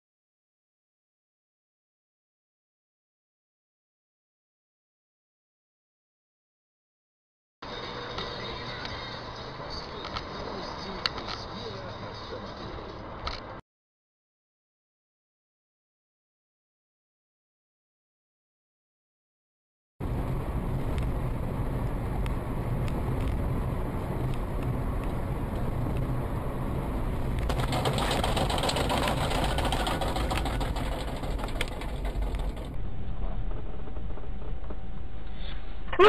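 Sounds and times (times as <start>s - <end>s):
car engine and road noise: 7.6s - 13.6s, 20.0s - 36.0s.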